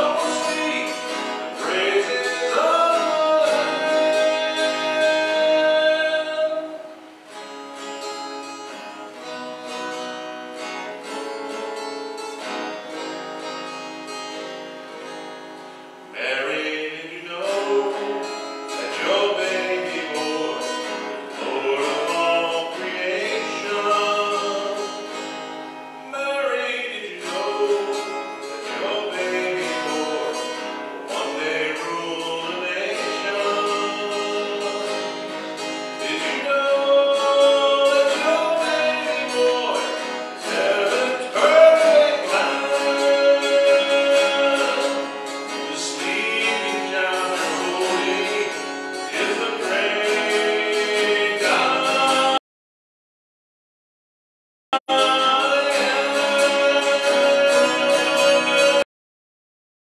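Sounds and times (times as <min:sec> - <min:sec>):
person singing into a microphone: 0:00.0 - 0:06.9, 0:16.2 - 0:25.0, 0:26.1 - 0:52.4, 0:54.8 - 0:58.9
strummed acoustic guitar: 0:00.0 - 0:52.4, 0:54.8 - 0:58.8.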